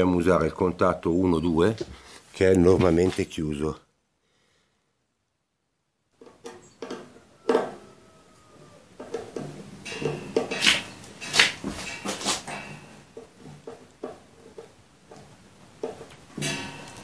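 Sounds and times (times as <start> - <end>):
hands working on sheet metal: 6.2 - 17.0.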